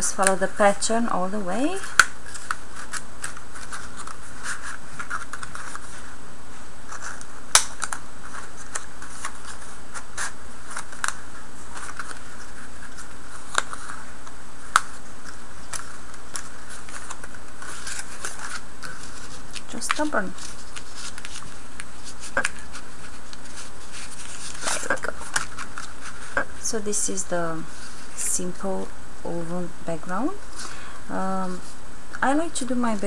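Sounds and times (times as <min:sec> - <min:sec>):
paper strips scraping: 0:01.8 - 0:06.2, 0:06.9 - 0:26.7
paper rustling: 0:02.2 - 0:06.2, 0:06.9 - 0:26.6.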